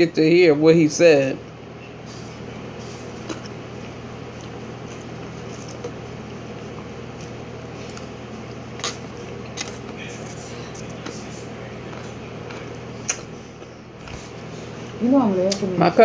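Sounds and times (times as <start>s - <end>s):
low electrical hum: 0.0s - 16.0s
person chewing: 2.8s - 15.0s.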